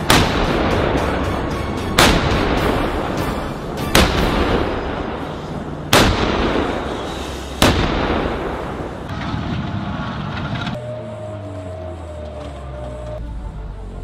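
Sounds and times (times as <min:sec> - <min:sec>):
howitzer shots: 0:00.0 - 0:10.8
long rolling rumble: 0:03.0 - 0:14.0
low drone with higher tone: 0:09.8 - 0:14.0.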